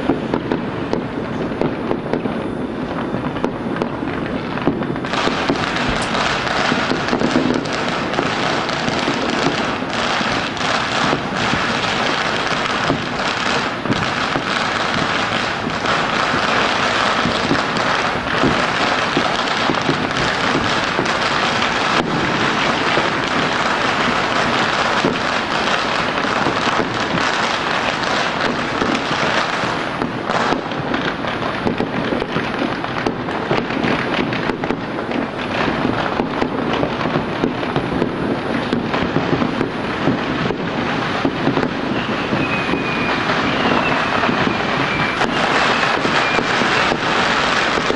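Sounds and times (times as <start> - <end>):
crackle of firecrackers: 0.0 - 47.9
firework pops and bangs: 0.0 - 47.9.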